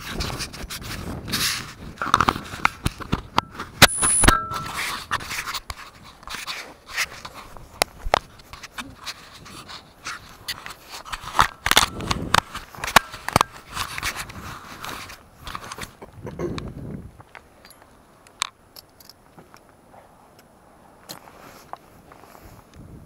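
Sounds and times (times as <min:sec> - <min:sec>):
brief lower tone: 0:03.8 - 0:04.8
high-pitched tone: 0:03.8 - 0:04.9.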